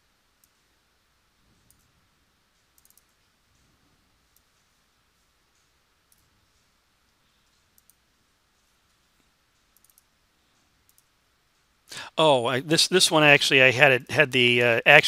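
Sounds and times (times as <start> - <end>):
computer mouse clicks: 1.6 - 1.9, 2.6 - 3.7, 5.6 - 6.7, 7.4 - 11.1.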